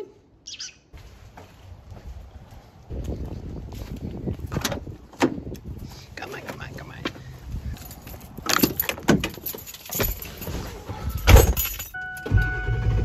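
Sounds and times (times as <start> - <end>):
keys jingling: 7.7 - 12.3
knocks and rattles: 7.8 - 12.0
diesel engine starting: 12.0 - 13.0.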